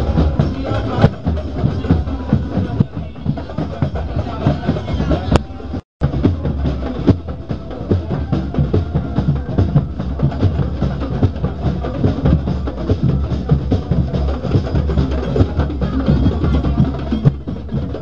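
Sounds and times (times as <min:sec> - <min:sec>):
drum-led music: 0:00.0 - 0:18.0.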